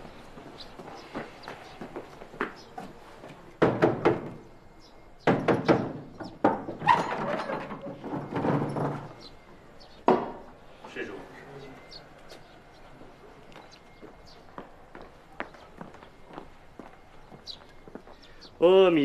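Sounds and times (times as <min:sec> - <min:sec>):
knocking on wooden gate: 0:03.6 - 0:04.4, 0:05.2 - 0:06.9, 0:10.1 - 0:10.4
wooden clatter and scraping: 0:05.3 - 0:10.5.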